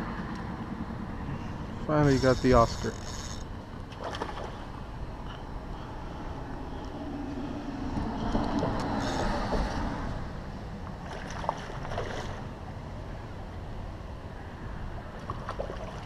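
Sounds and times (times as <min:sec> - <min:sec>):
fish splashing at water surface: 0:11.0 - 0:12.5.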